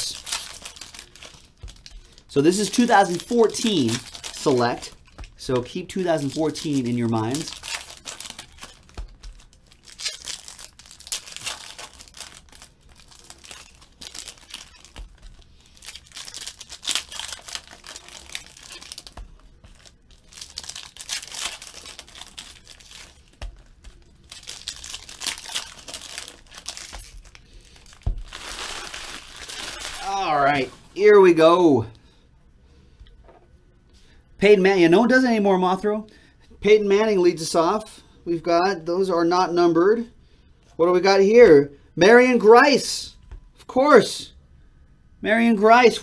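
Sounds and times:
foil wrappers torn and crinkled: 0.0s - 30.7s.

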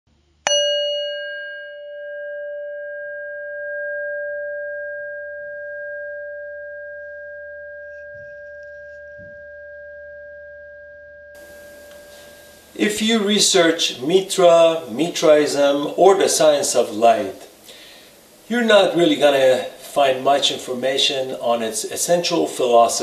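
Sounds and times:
bell-like metal tone ringing: 0.4s - 12.8s.

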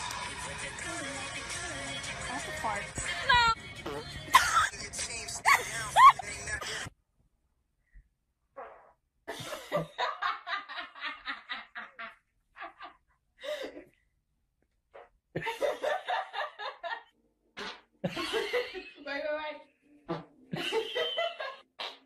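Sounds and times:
person laughing: 4.3s - 4.8s, 5.4s - 6.2s.

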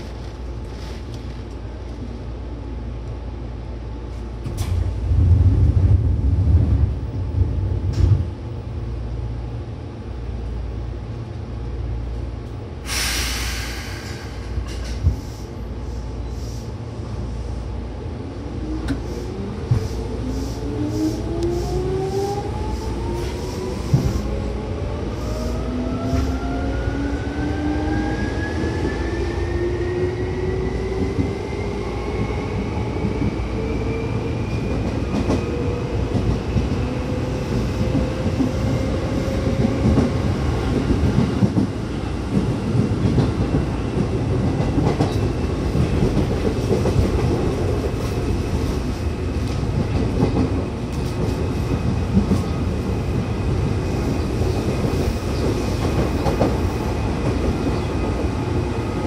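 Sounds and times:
train wheels clattering on rails: 12.9s - 15.2s, 34.5s - 58.9s.

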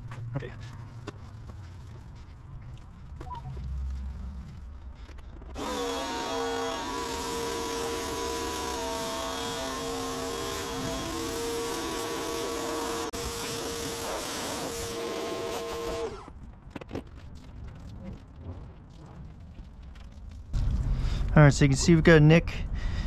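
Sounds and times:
loud hiss: 5.6s - 16.1s
car-wash machine whine: 5.6s - 16.3s.

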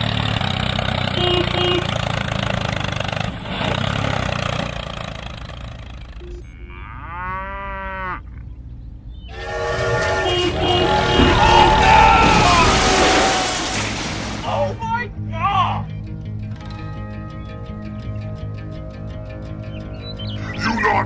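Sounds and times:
horn-like chord: 9.3s - 11.0s
motor droning: 9.3s - 12.4s.

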